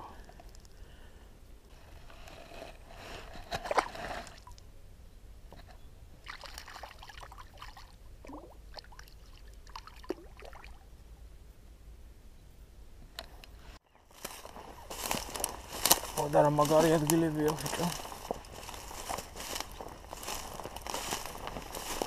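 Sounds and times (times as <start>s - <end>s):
small splashes and drips: 6.2s - 10.8s
water sloshing and splashing: 6.2s - 10.8s.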